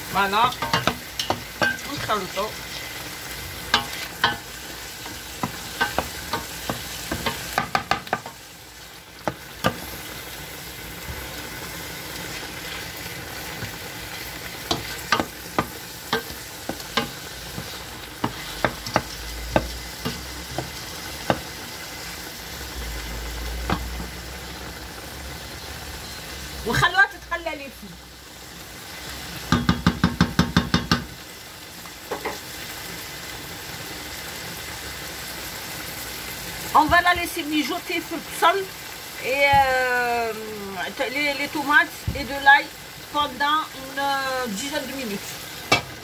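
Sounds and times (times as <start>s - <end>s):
food sizzling in a pot: 0.0s - 46.0s
wooden spoon knocking against pot: 5.4s - 8.4s, 29.5s - 31.1s.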